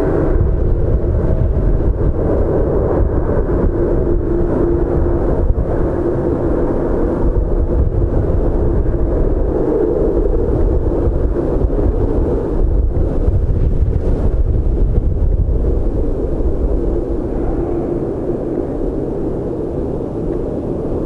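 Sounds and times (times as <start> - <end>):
jet engines at takeoff thrust: 0.0 - 21.0.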